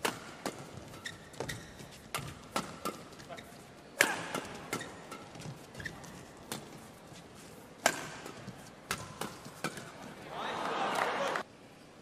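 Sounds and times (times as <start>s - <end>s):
rackets striking shuttlecock: 0.0s - 3.2s, 4.0s - 5.6s, 7.8s - 10.0s.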